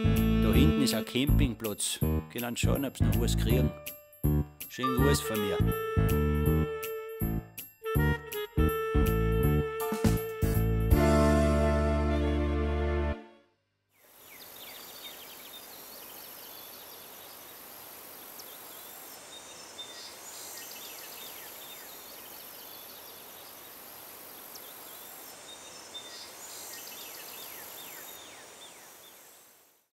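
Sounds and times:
high-pitched insect buzz: 0.0 - 1.2.

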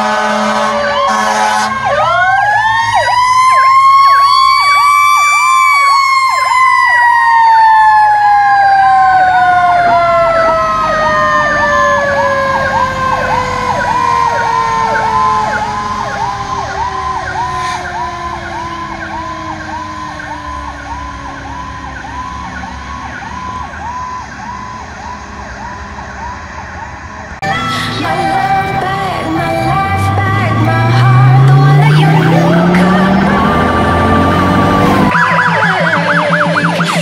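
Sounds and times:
wailing fire truck siren: 0.0 - 37.0
yelping siren: 0.0 - 37.0.

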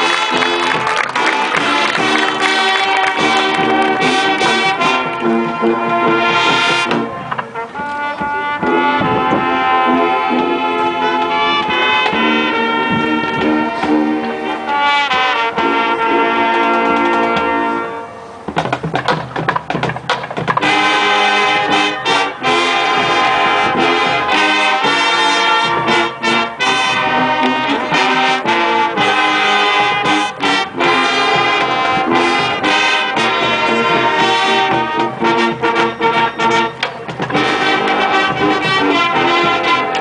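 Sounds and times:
marching band brass chords: 0.0 - 40.0
drum hits: 18.5 - 21.0, 29.0 - 40.0.

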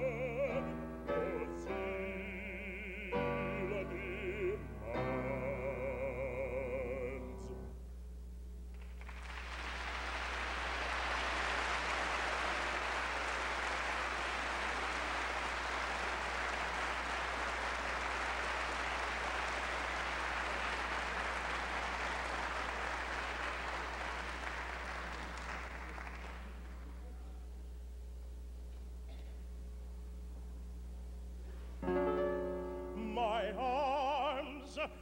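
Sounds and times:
steady low hum: 0.0 - 35.0
audience applauding: 8.7 - 27.0.

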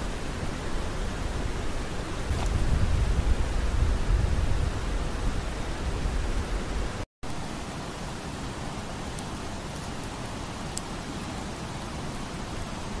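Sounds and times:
campfire hissing: 0.0 - 13.0
fire crackles: 2.1 - 13.0.

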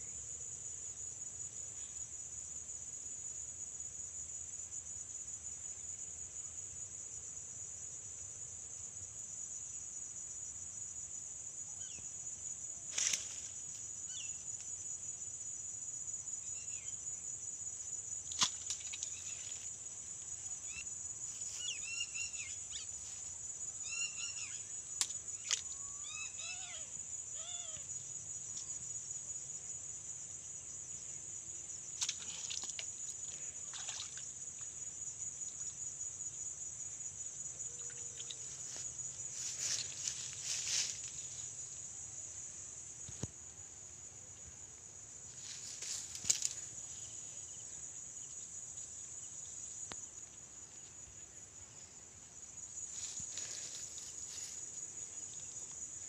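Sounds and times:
crickets trilling: 0.0 - 56.0.

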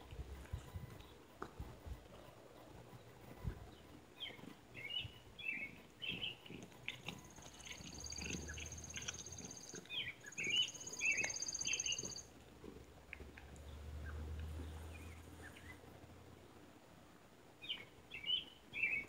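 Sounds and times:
small birds chirping: 2.0 - 16.6, 17.6 - 19.0
high fast bird trill: 7.6 - 12.3.

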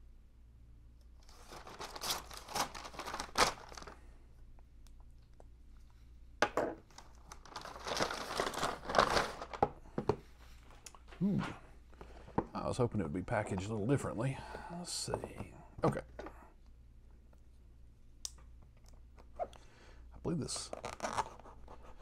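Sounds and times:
envelope rustling and tearing: 1.2 - 4.0, 7.0 - 9.6, 20.6 - 21.6.

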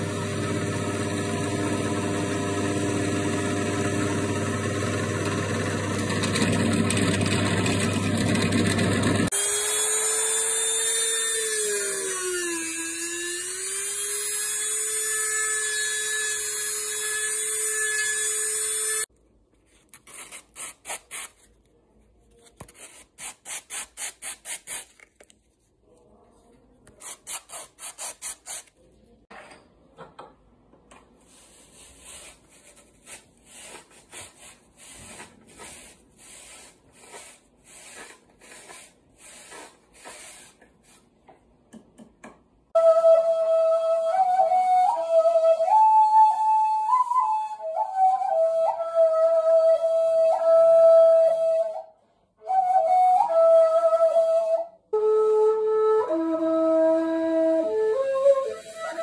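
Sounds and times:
rotary tool grinding whine: 0.0 - 19.1
cord swab rubbing through tube: 26.9 - 28.8
short rubbing strokes: 31.2 - 41.1.

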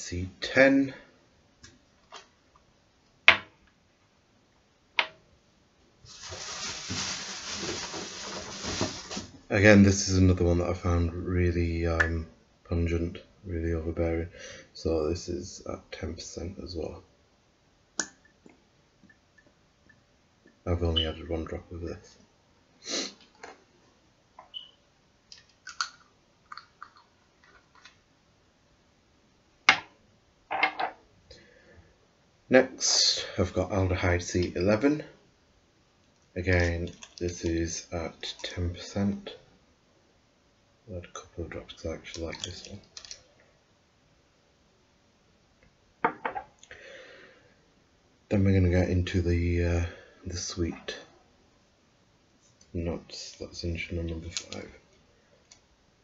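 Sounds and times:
steady rushing hiss: 6.0 - 9.6.

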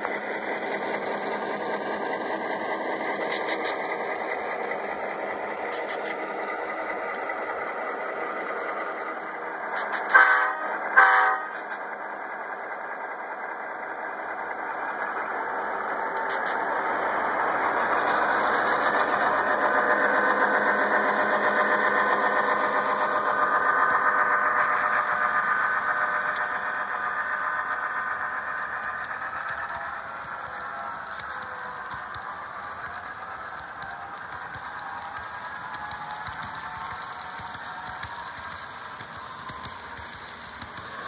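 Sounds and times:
short horn blasts: 10.1 - 11.6.

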